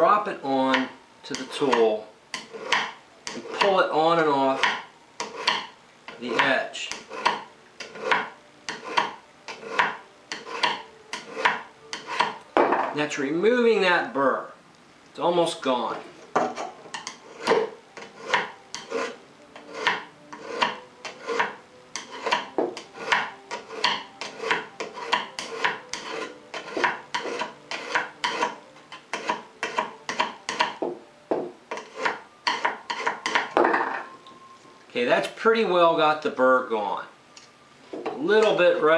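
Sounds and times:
metal scraping on metal: 0:02.4 - 0:12.4, 0:15.9 - 0:30.3, 0:31.7 - 0:34.1.

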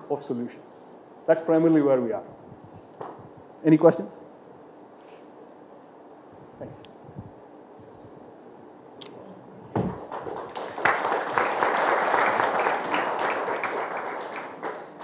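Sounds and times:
audience applauding: 0:09.9 - 0:15.0.

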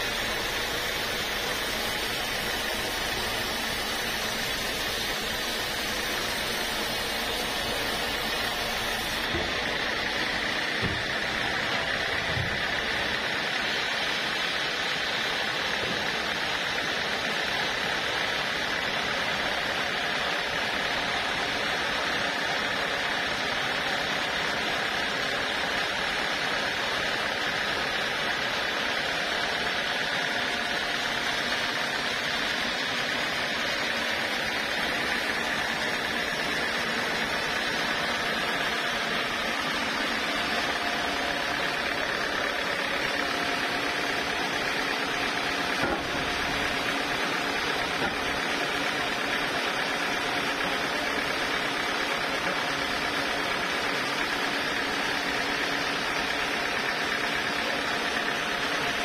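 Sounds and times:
band sawmill humming: 0:00.0 - 0:13.2, 0:29.4 - 0:59.0.

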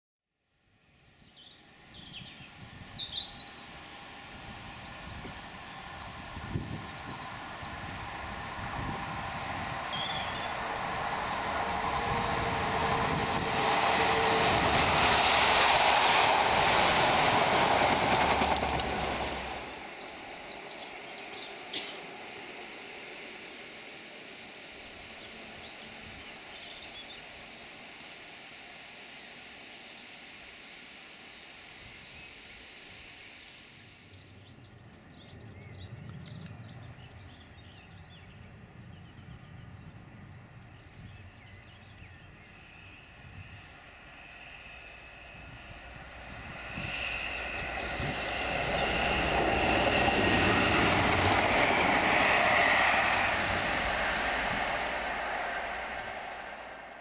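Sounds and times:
diesel train passing: 0:00.8 - 0:57.0
small birds singing: 0:01.1 - 0:11.5, 0:19.4 - 0:22.0, 0:24.1 - 0:28.2, 0:33.5 - 0:50.9.

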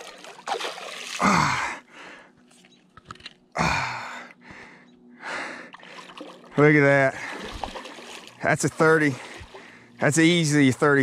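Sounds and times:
man breathing hard: 0:01.2 - 0:02.5, 0:03.6 - 0:06.0, 0:09.2 - 0:10.0.

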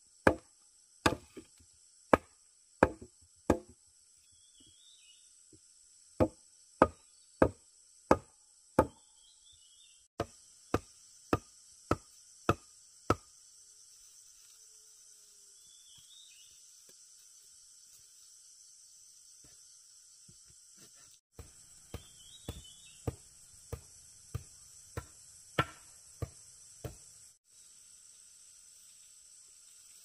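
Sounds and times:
insect buzz: 0:00.0 - 0:30.0
wooden mallet knocking stake: 0:00.3 - 0:01.5, 0:02.1 - 0:03.8, 0:06.2 - 0:09.0, 0:10.2 - 0:13.3, 0:21.3 - 0:27.1.

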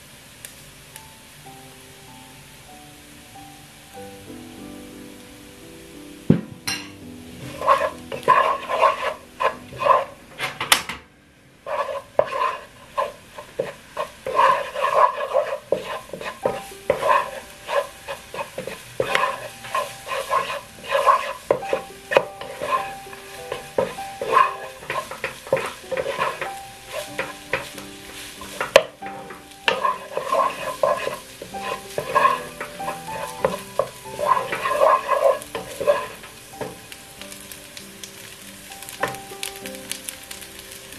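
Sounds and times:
rice sizzling: 0:00.0 - 0:40.9
spatula scraping a pan: 0:07.4 - 0:10.8, 0:11.6 - 0:36.9.

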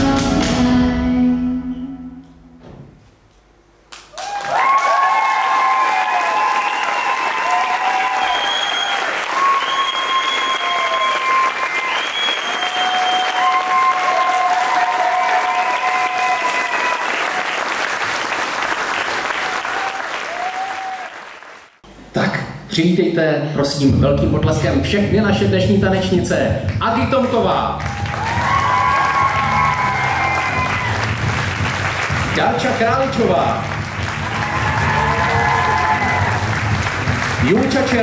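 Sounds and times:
audience applauding: 0:03.9 - 0:21.8, 0:27.7 - 0:38.0
whoops and cheers: 0:04.1 - 0:17.6, 0:19.6 - 0:21.2, 0:27.8 - 0:31.1, 0:34.2 - 0:36.6.

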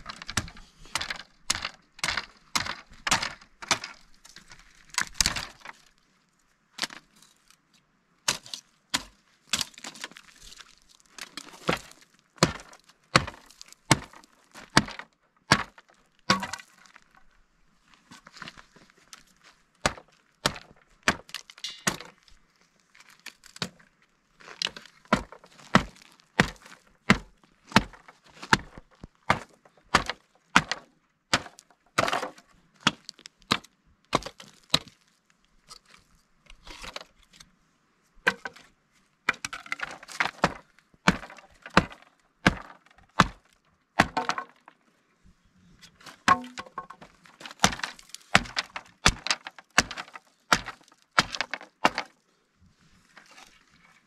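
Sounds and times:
wood slats cracking and splitting: 0:00.0 - 0:04.0, 0:11.1 - 0:16.8, 0:19.8 - 0:22.2, 0:24.6 - 0:34.9, 0:39.3 - 0:44.7, 0:46.2 - 0:52.2
hatchet striking wood: 0:14.8 - 0:16.6, 0:19.9 - 0:22.1, 0:40.2 - 0:44.6, 0:46.3 - 0:47.0, 0:47.6 - 0:52.1.

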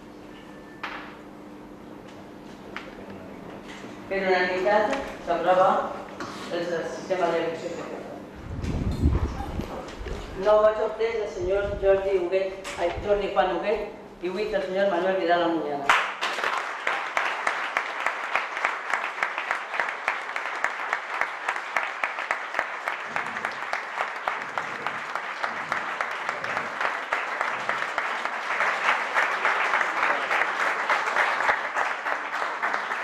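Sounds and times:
people applauding: 0:15.9 - 0:33.0.

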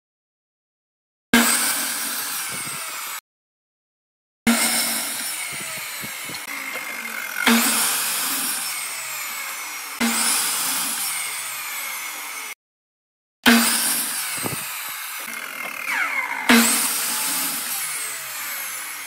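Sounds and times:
miter saw cutting wood: 0:01.4 - 0:03.2, 0:04.5 - 0:12.6, 0:13.5 - 0:19.0.

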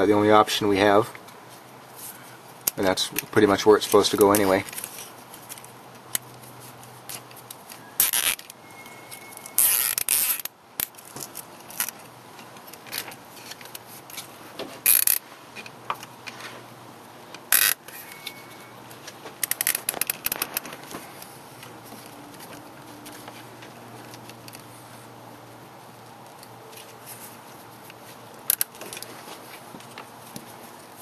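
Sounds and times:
cable tie scraping: 0:01.5 - 0:16.7, 0:17.5 - 0:25.0
cable tie ratchet clicks: 0:07.1 - 0:08.6, 0:09.5 - 0:14.2, 0:14.9 - 0:15.2, 0:17.4 - 0:17.9, 0:19.4 - 0:21.3, 0:27.9 - 0:29.1.

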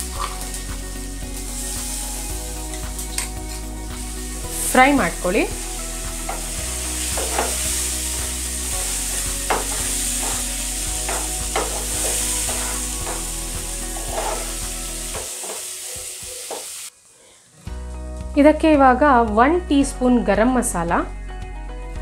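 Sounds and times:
paste sizzling in oil: 0:00.0 - 0:17.0
wooden spatula scraping pan: 0:09.4 - 0:15.6.

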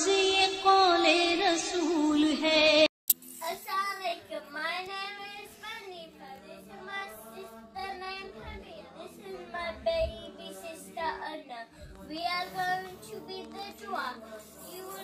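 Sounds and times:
girl speaking sing-song: 0:03.4 - 0:06.3
person singing over music: 0:06.2 - 0:15.0.

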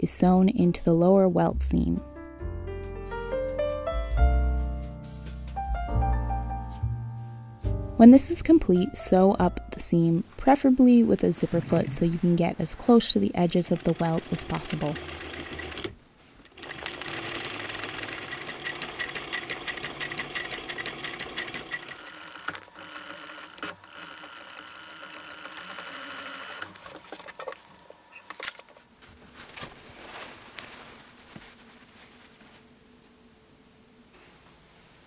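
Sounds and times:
sewing machine stitching: 0:12.9 - 0:27.6
fabric handling: 0:28.1 - 0:32.7.

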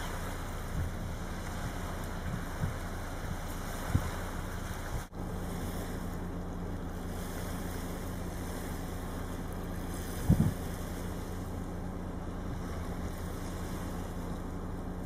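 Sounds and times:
wind buffeting microphone: 0:00.0 - 0:06.3, 0:07.7 - 0:14.6
surf and wind rumble: 0:00.0 - 0:15.0.

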